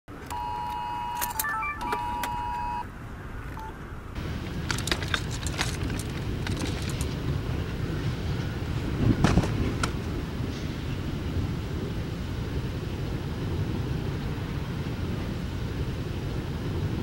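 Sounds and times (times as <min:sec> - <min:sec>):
phone emergency alert tone: 0:00.3 - 0:02.9
short higher beeps: 0:00.3 - 0:02.9
outdoor rumble: 0:01.9 - 0:17.0.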